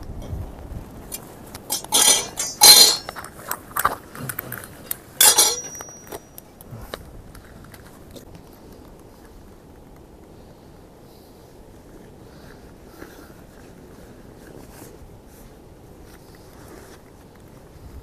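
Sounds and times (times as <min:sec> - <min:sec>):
tent poles clattering: 0:01.1 - 0:07.0
tent poles clinking and rattling: 0:01.1 - 0:08.4.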